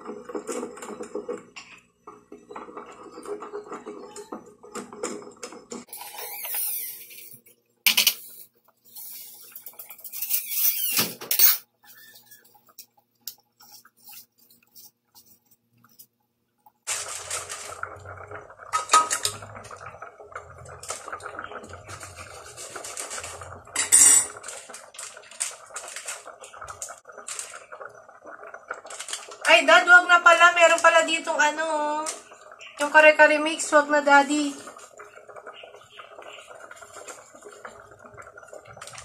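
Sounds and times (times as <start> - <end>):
metal spoon scraping a pot: 5.9 - 12.5.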